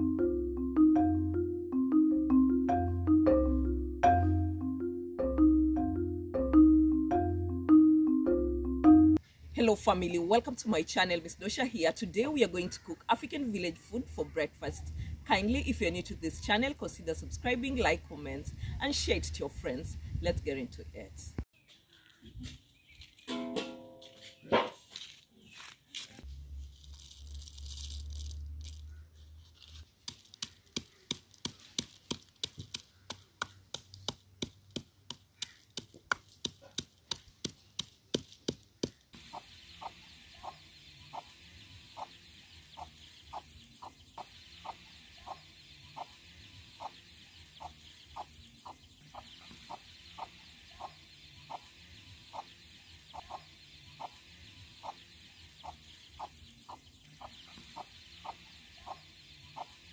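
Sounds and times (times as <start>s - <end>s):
wooden pestle pounding in mortar: 30.1s - 39.0s
hen clucking: 39.2s - 46.2s, 46.8s - 51.7s, 52.3s - 54.2s, 54.8s - 59.8s.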